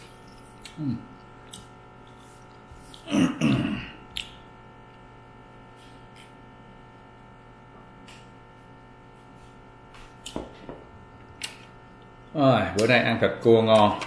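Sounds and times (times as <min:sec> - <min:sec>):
steady hum: 0:00.0 - 0:14.0
man clearing his throat: 0:03.0 - 0:04.0.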